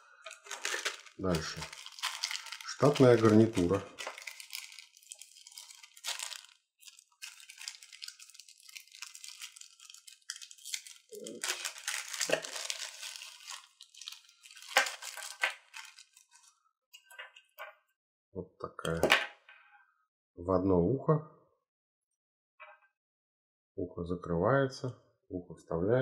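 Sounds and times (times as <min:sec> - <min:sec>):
plastic bag crinkling: 0:00.0 - 0:16.5.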